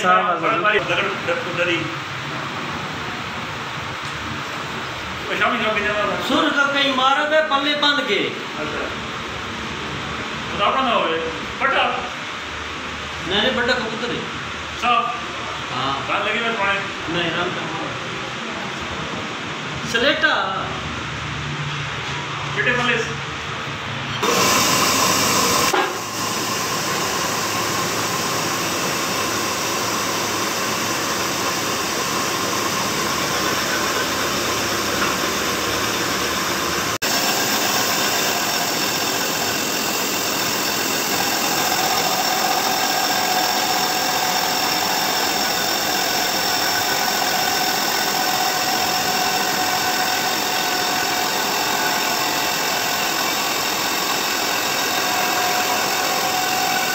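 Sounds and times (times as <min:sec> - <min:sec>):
motors humming and whining: 0:24.1 - 0:56.9
grinding wheel hiss: 0:24.2 - 0:56.9.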